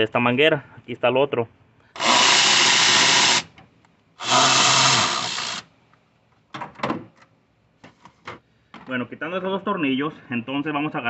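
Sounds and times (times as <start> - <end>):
cordless power tool whirring: 2.0 - 3.5, 4.2 - 5.7.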